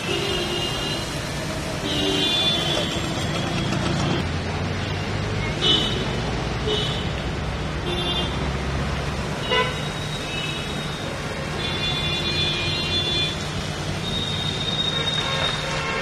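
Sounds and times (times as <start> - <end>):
traffic noise: 0.0 - 16.0
vehicle horns honking: 1.8 - 4.2, 9.4 - 10.7, 11.5 - 13.4, 14.1 - 16.0.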